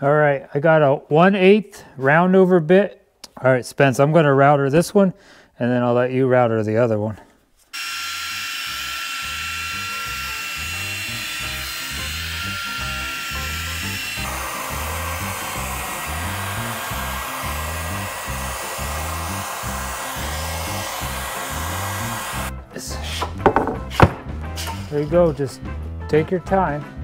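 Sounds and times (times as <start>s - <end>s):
router whining: 7.7s - 22.5s
background music with steady beat: 22.4s - 27.0s.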